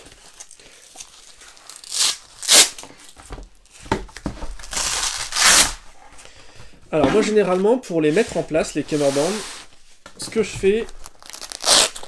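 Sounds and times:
velcro ripping apart: 1.1s - 2.8s, 4.7s - 5.8s, 11.0s - 12.0s.

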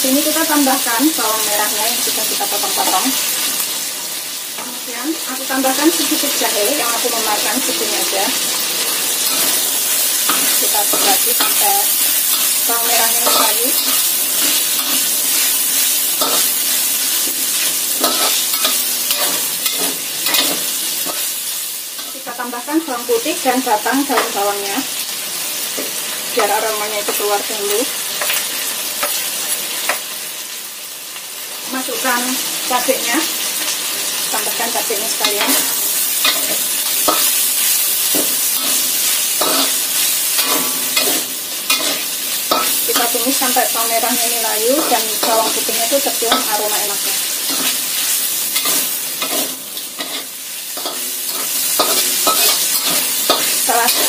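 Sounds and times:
food sizzling in oil: 0.0s - 54.0s
metal spatula scraping a wok: 7.2s - 22.4s, 35.0s - 54.0s.

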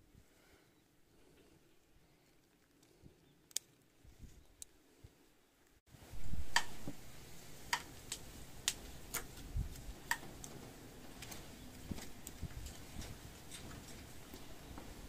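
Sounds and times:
garden shears snipping stems: 7.7s - 10.6s.

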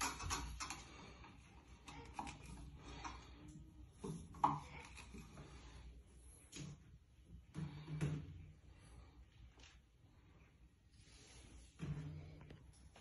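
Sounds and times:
tubes clicking into plastic connectors: 0.0s - 1.0s.

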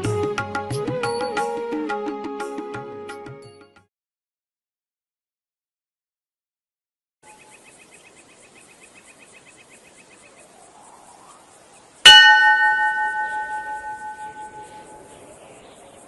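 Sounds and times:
rapid ticking trill: 12.0s - 15.1s
bell ringing: 12.1s - 15.1s.

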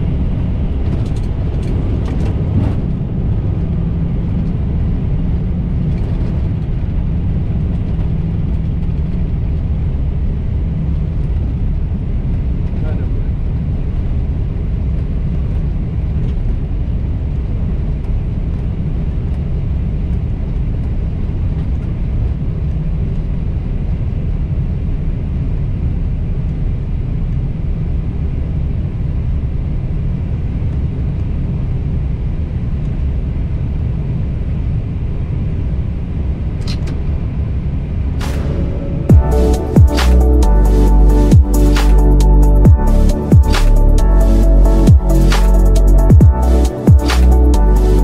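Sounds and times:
airliner rumble on runway: 0.0s - 39.8s.

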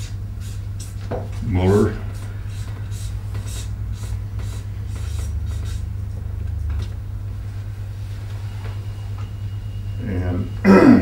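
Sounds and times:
marker squeaking on paper: 0.0s - 7.0s
low background hum: 0.0s - 11.0s.

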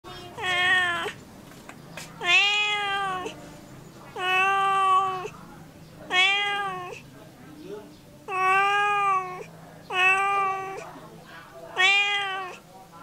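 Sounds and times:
cat meowing: 0.2s - 1.2s, 2.2s - 3.4s, 4.2s - 5.3s, 6.1s - 7.0s, 8.3s - 10.9s, 11.8s - 12.6s.

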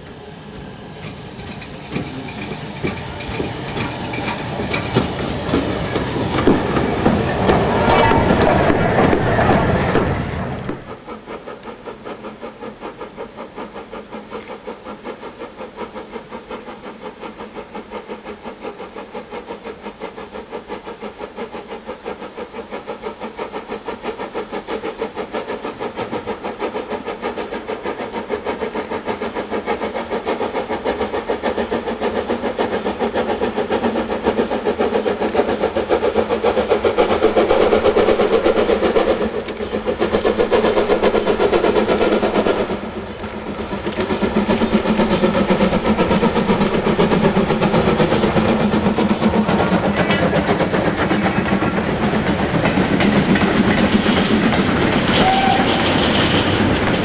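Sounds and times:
steam locomotive exhaust beats: 0.0s - 57.0s.

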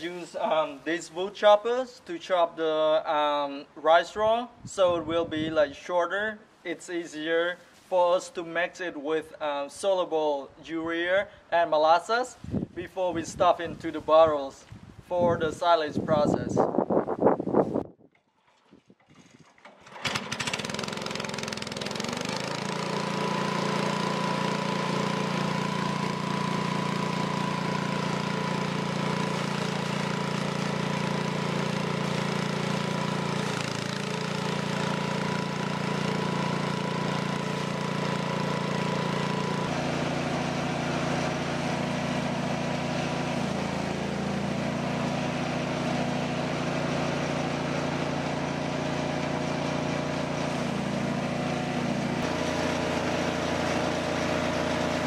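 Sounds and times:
small petrol engine running: 19.7s - 55.0s.

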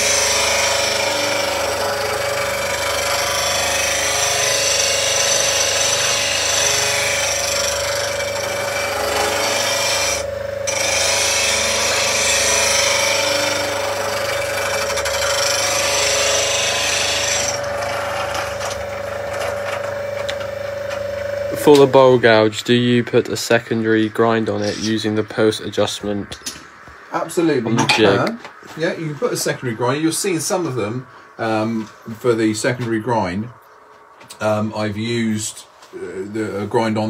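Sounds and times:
bench grinder humming: 0.0s - 25.4s
steel tool grinding on wheel: 0.0s - 26.6s.

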